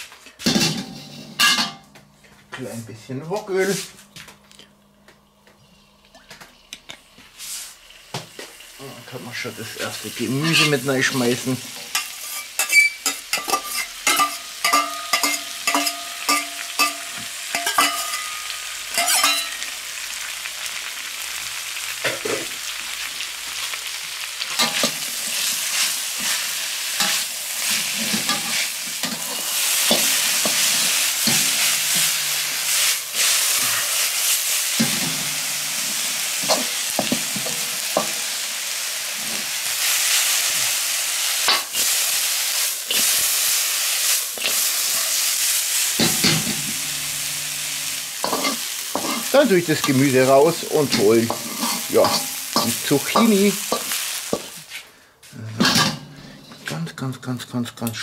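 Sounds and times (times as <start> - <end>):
spatula clanking and scraping wok: 0.4 - 2.0, 10.3 - 19.7, 24.4 - 54.8, 55.6 - 56.7
wok ringing: 0.5 - 1.9, 11.8 - 19.8, 24.5 - 38.8, 42.5 - 54.5
vegetables sizzling in oil: 5.3 - 56.4.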